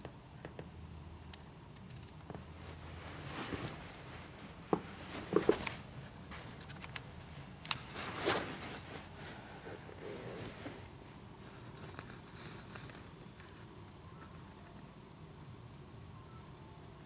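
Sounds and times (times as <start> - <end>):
short rustle: 2.6 - 10.9.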